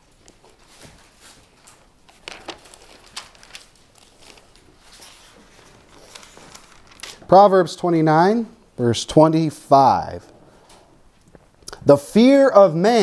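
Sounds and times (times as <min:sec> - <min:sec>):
paper pages rustling: 0:00.0 - 0:07.3.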